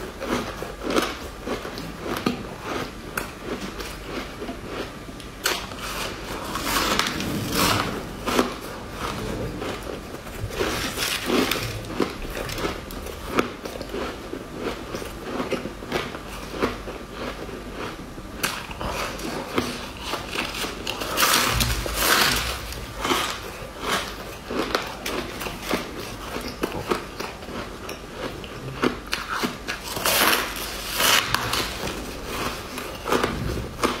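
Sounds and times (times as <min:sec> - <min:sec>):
ice crunching being chewed: 0:00.0 - 0:34.0.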